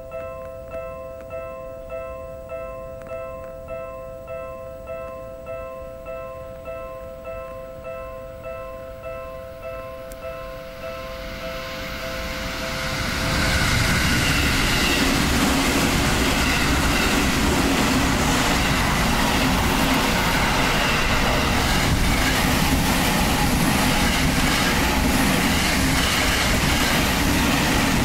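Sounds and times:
crossing warning bells: 0:00.0 - 0:28.0
train wheels rumbling on rails: 0:10.1 - 0:28.0.

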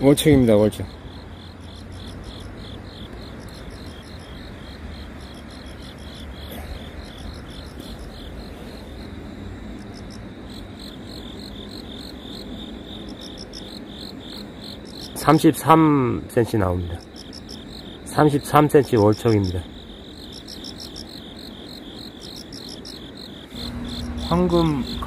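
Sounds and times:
insects chirping: 0:00.0 - 0:25.0
low background noise: 0:00.0 - 0:25.0.

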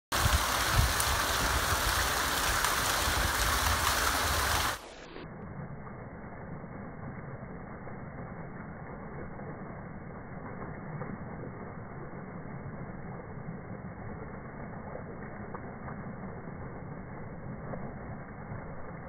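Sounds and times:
water splashing on concrete: 0:00.1 - 0:05.2
slowed muffled low rumble: 0:00.1 - 0:19.0.

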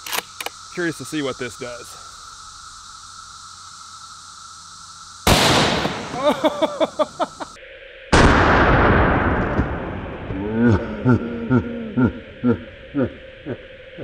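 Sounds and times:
rifle shots: 0:05.3 - 0:06.5.

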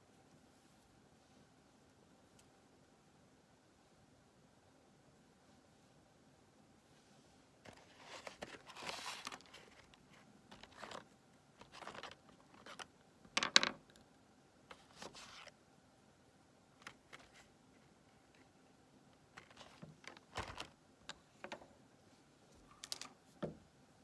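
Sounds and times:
cardboard box rustling: 0:07.7 - 0:11.0.

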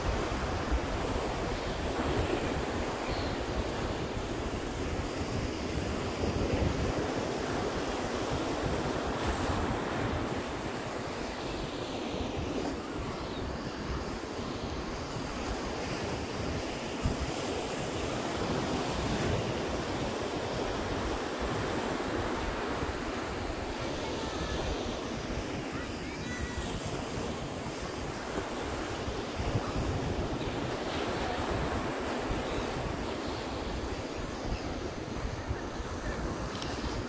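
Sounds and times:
wind buffeting microphone: 0:00.0 - 0:37.0.

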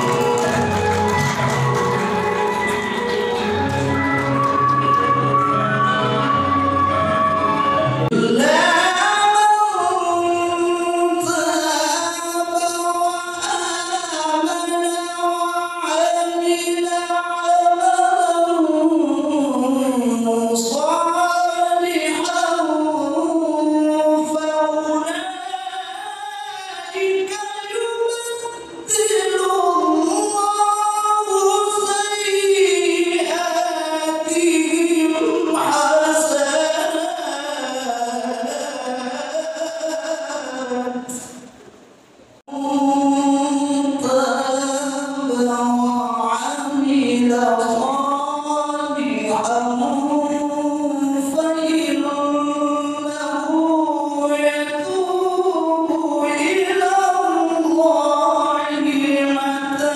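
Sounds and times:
man chanting into a microphone: 0:08.1 - 0:41.5, 0:42.5 - 0:59.9.

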